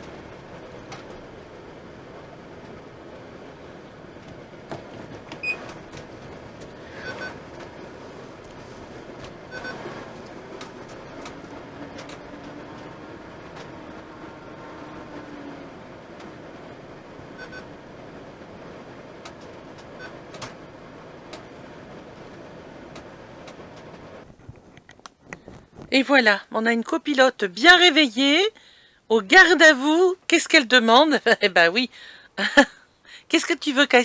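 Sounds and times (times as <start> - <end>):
light clicks and ticks in cab: 0.0 - 1.5, 4.1 - 13.9, 19.1 - 26.0
engine running at low speed: 0.0 - 24.3.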